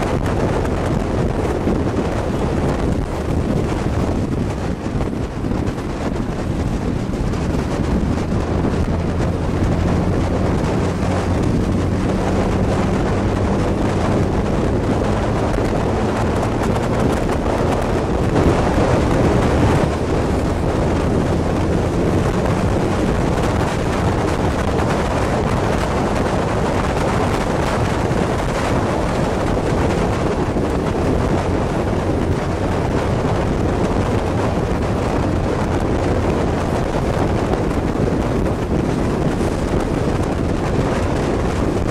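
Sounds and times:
motorcycle engine running: 0.0s - 41.9s
wind noise on microphone: 0.0s - 41.9s.

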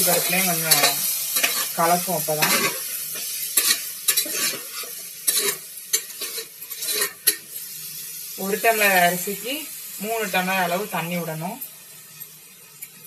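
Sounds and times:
hot oil sizzling: 0.0s - 13.0s
metal spoon scraping pot: 3.6s - 7.4s.

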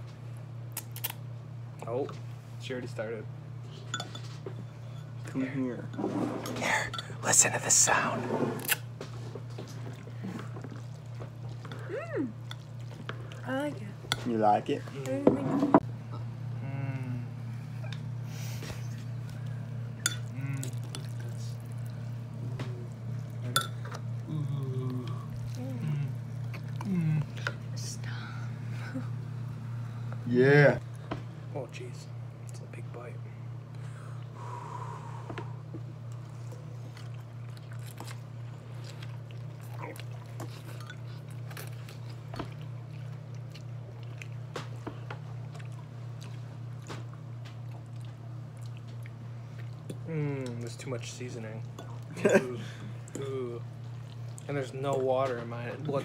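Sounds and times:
low hum: 14.8s - 50.8s
people slurping noodles: 20.2s - 23.0s, 24.2s - 27.5s.

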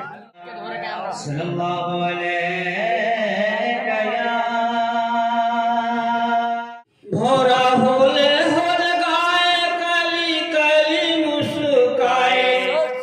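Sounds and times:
man singing a long note: 7.1s - 13.0s
loud voice: 10.8s - 13.0s.

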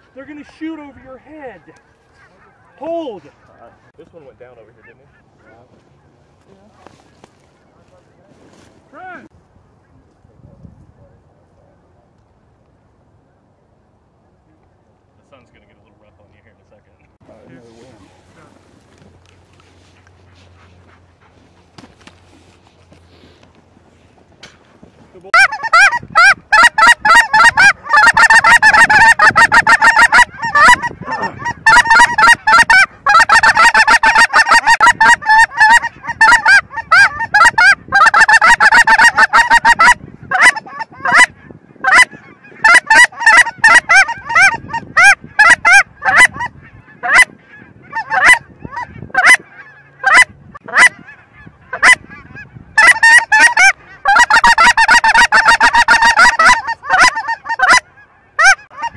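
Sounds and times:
geese honking in flight: 0.0s - 6.2s, 25.3s - 58.9s.

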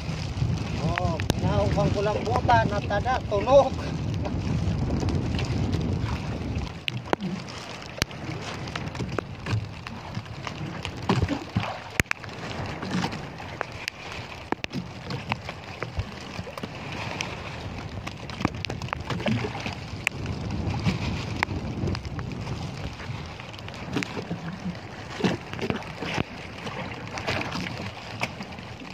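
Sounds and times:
water lapping against boat hull: 0.0s - 28.9s.

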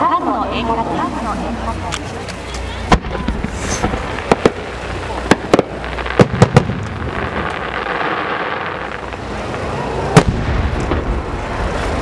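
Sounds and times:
fireworks crackling hiss: 0.7s - 12.0s
weaker firework bang: 2.9s - 7.6s, 10.1s - 11.3s
firework shell booming: 2.9s - 11.9s.

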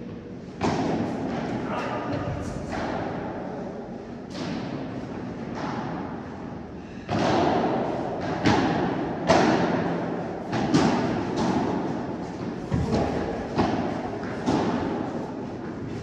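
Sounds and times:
padel ball struck by rackets: 7.1s - 15.1s
ball bouncing on court: 10.5s - 15.0s.

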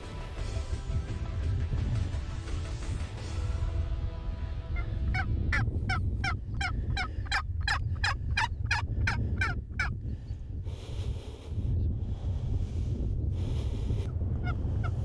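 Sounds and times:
background music: 0.0s - 6.4s
low wind rumble: 0.0s - 15.0s.

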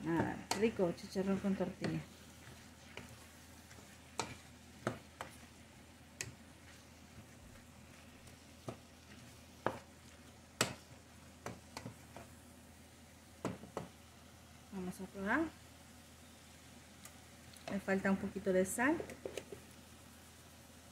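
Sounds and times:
wooden spoon scraping a pot: 0.0s - 10.9s
faint sizzle: 0.0s - 20.9s.

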